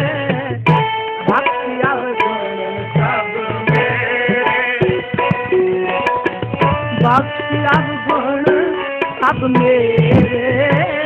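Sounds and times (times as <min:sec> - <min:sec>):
harmonium chords: 0:00.0 - 0:11.0
tabla strokes: 0:00.0 - 0:11.0.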